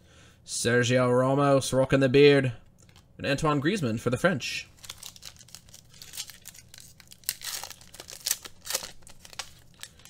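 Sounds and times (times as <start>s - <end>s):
wrapper tearing and crinkling: 4.7s - 10.0s.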